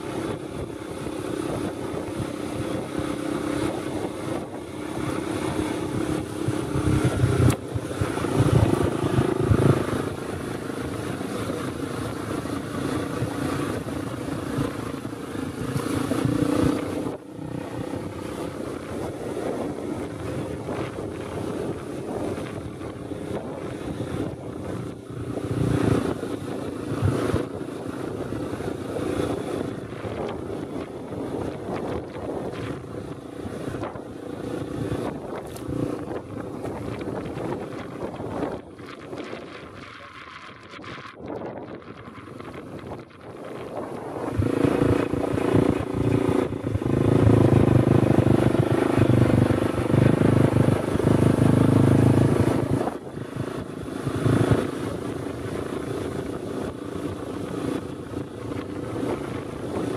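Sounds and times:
dirt bike engine revving: 44.2 - 52.9.

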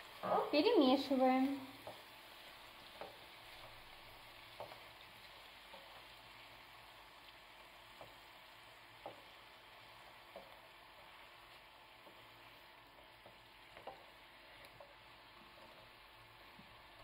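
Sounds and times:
apples sizzling in a pan: 0.0 - 17.0
spatula knocking against a pan: 9.0 - 9.4.

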